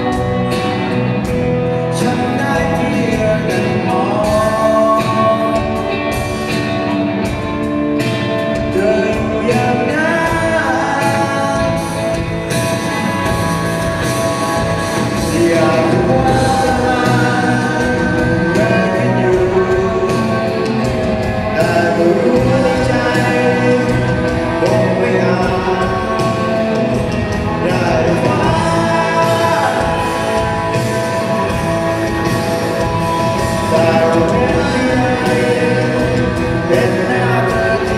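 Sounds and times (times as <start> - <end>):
person singing: 0.0 - 7.4, 8.0 - 37.9
drums keeping a steady beat: 0.0 - 37.9
live band playing: 0.0 - 37.9.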